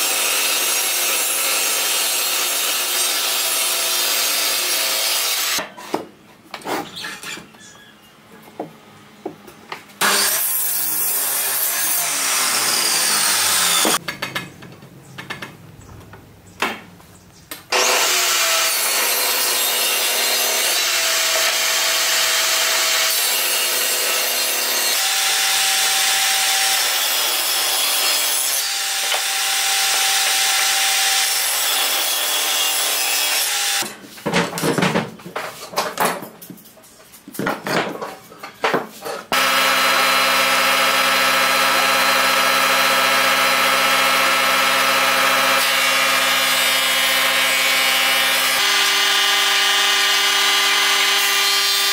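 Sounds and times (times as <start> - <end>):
miter saw cutting wood: 0.0 - 5.6, 10.0 - 14.0, 17.7 - 33.9, 39.3 - 51.9
table saw ripping board: 10.0 - 14.0.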